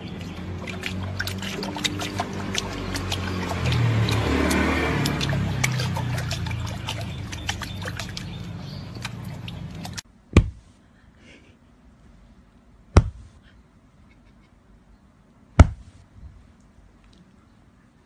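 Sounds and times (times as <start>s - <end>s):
water drips and clicks: 0.0s - 10.0s
water splashing in stone basin: 0.0s - 10.6s
sharp loud thumps: 10.3s - 10.7s, 12.9s - 13.4s, 15.6s - 16.0s.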